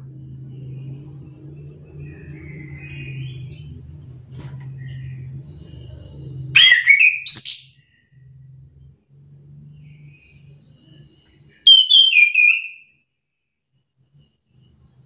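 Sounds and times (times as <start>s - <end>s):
low steady hum: 0.0s - 11.7s.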